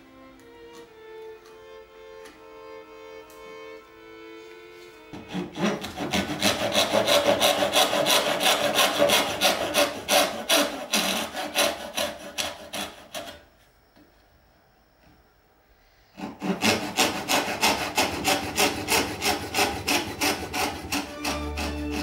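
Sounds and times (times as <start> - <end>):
soft violin music: 0.0 - 6.1, 20.4 - 22.0
hand saw cutting wood: 5.2 - 13.4, 16.2 - 22.0.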